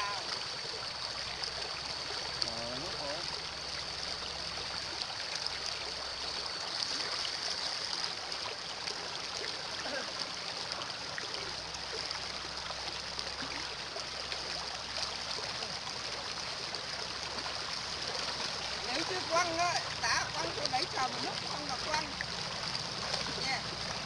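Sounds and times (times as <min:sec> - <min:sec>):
river water flowing: 0:00.0 - 0:24.0.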